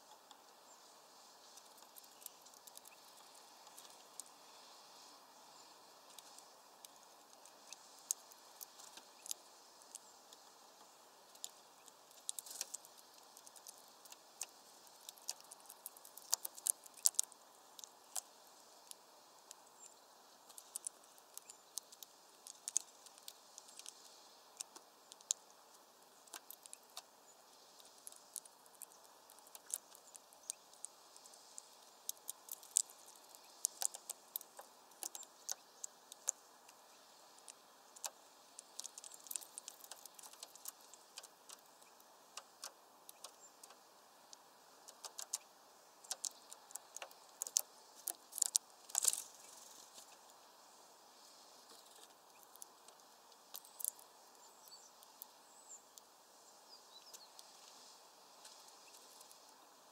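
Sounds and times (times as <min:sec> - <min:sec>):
faint steady hiss: 0:00.0 - 0:59.9
light clicks and taps: 0:06.1 - 0:18.3, 0:18.9 - 0:25.5, 0:26.2 - 0:36.8, 0:37.4 - 0:50.3, 0:51.3 - 0:54.1.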